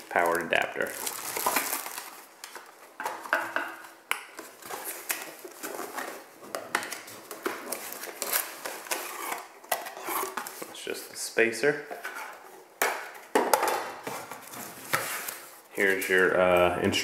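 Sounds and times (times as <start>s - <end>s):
cardboard scraping and rustling: 14.0s - 15.6s.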